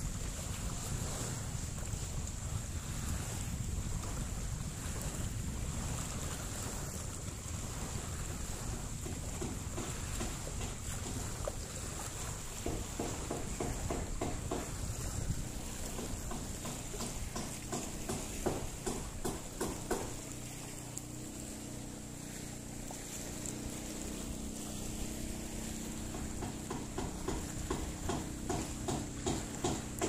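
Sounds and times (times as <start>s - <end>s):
boat engine humming: 0.0s - 30.0s
light knocks: 12.6s - 14.8s, 15.8s - 20.4s, 26.0s - 30.0s.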